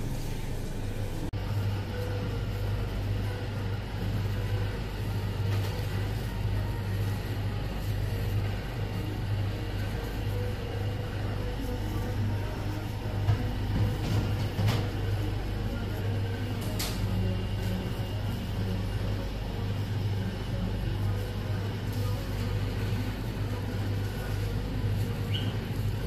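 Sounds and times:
motor humming: 0.0s - 26.0s.

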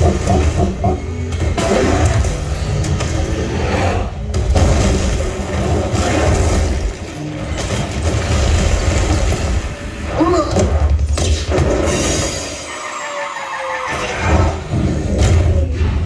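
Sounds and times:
deep bass rumble: 0.0s - 1.6s
action film soundtrack: 0.0s - 16.0s.

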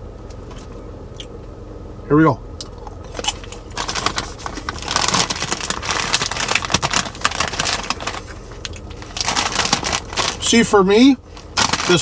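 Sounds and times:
popcorn crunching while chewed: 2.6s - 10.7s, 11.4s - 12.0s.

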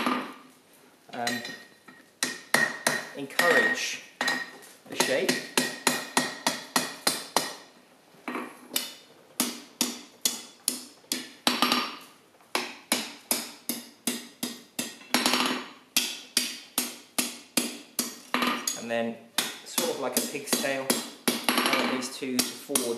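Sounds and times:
hammer striking steel on anvil: 1.2s - 7.6s, 19.4s - 22.9s.

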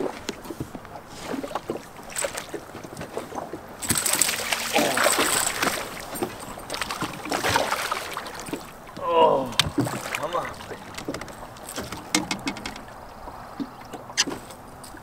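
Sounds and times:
fish splashing at the surface: 1.2s - 8.8s
small knocks and handling noise: 10.8s - 12.9s.

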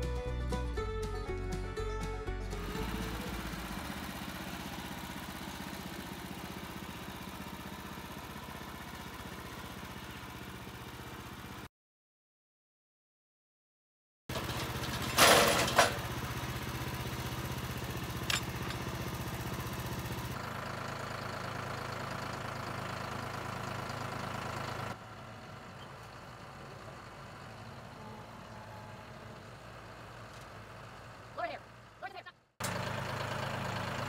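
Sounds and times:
tractor diesel engine running: 0.0s - 11.7s, 14.3s - 34.0s
loud metal clanks: 14.7s - 16.1s.

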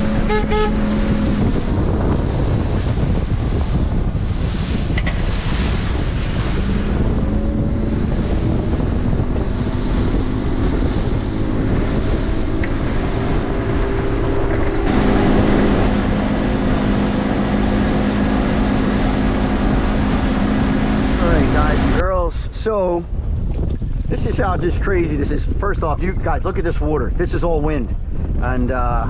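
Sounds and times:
outboard motor running: 0.0s - 22.1s
hull rushing over water: 0.0s - 29.0s
wind buffeting microphone: 0.0s - 29.0s.

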